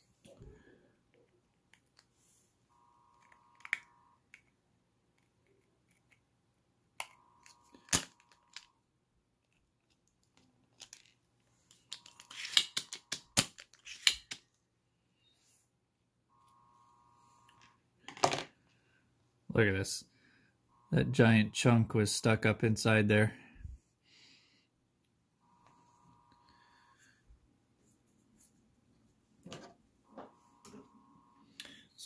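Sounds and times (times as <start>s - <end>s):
faint buzzing tone: 2.7s - 4.3s, 16.3s - 17.8s, 25.4s - 27.3s, 30.0s - 32.0s.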